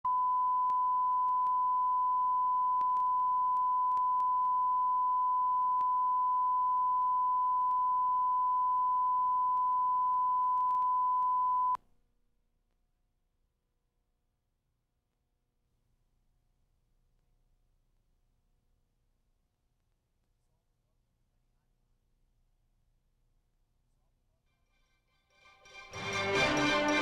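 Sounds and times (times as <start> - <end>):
pure test tone: 0.1 - 11.8.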